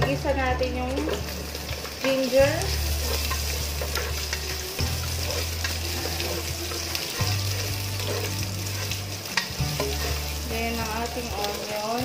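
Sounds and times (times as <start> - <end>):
ginger sizzling in hot oil: 0.0 - 12.0
spatula scraping and clicking: 1.0 - 10.5.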